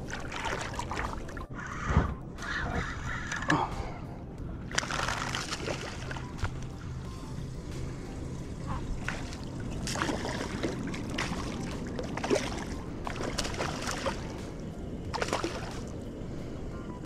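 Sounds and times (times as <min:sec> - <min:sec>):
steady low rumble: 0:00.0 - 0:17.0
fish splashing at surface: 0:04.7 - 0:06.3, 0:15.1 - 0:15.8.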